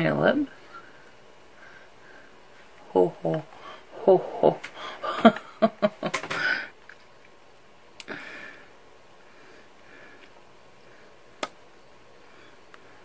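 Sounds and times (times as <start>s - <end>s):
breathy exhale: 8.1s - 11.2s.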